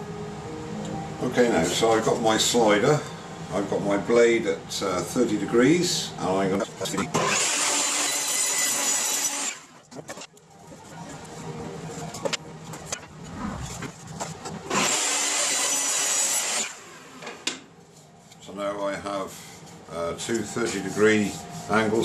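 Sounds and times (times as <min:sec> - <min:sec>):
table saw cutting wood: 0:07.1 - 0:09.8, 0:14.7 - 0:17.4.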